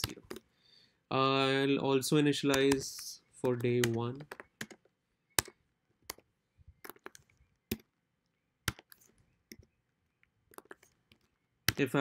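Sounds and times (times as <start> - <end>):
computer keyboard typing: 3.6 - 4.8.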